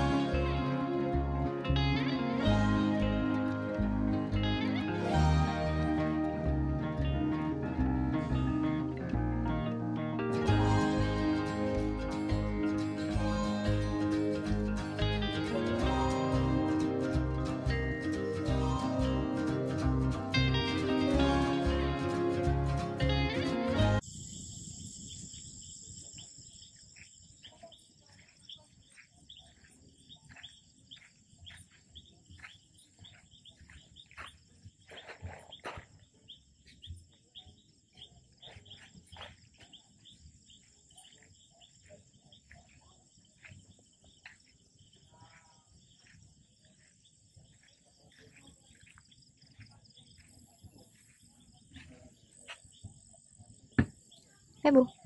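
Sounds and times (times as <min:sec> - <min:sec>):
crickets chirping: 0:24.0 - 0:55.0.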